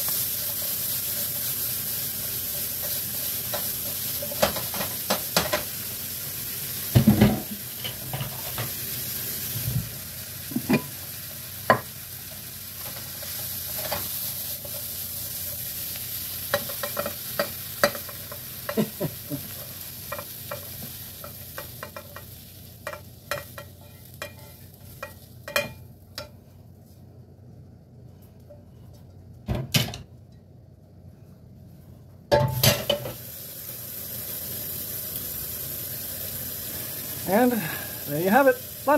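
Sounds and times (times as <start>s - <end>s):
food sizzling in a frying pan: 0.0s - 26.6s, 32.3s - 38.9s
spatula scraping and knocking pan: 16.5s - 18.9s, 20.0s - 26.4s.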